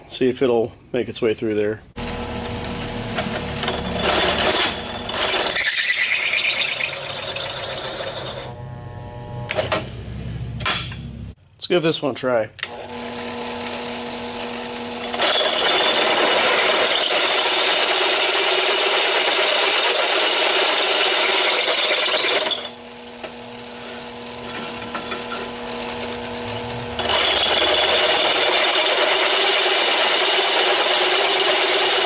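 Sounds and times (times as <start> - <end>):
drill press motor humming: 2.0 - 10.8, 12.6 - 32.0
drill bit cutting steel: 2.2 - 8.6, 13.1 - 32.0.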